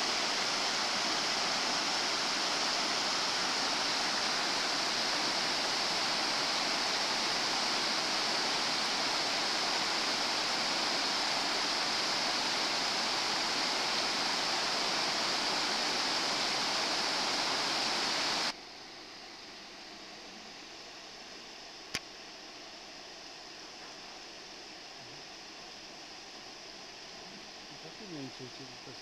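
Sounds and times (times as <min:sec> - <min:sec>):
river water rushing: 0:00.0 - 0:18.5.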